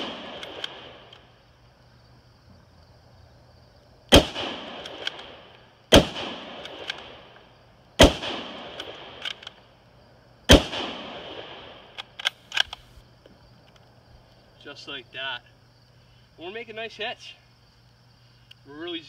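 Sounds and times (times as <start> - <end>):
rifle shots: 0.0 - 1.2, 4.1 - 7.4, 8.0 - 9.6, 10.5 - 12.9
rifle bolt clicking: 0.4 - 1.3, 4.8 - 5.3, 6.6 - 7.1, 8.8 - 9.6, 11.9 - 12.9.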